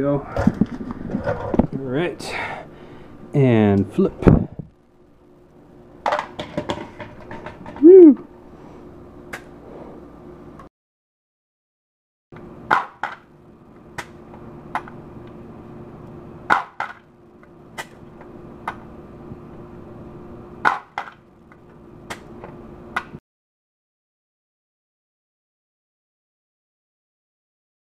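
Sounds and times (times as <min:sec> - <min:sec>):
steady low hum: 0:00.0 - 0:10.7, 0:12.4 - 0:23.2.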